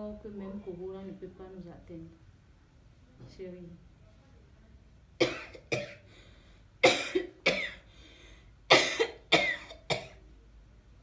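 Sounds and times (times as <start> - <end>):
person coughing hard: 5.2 - 6.0, 6.8 - 7.9, 8.7 - 10.2.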